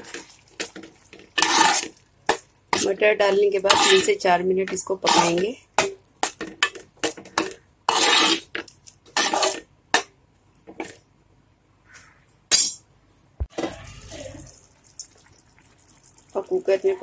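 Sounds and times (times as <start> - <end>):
metal spoon scraping a cooking pot: 0.0 - 1.9, 2.7 - 5.5, 6.2 - 9.6.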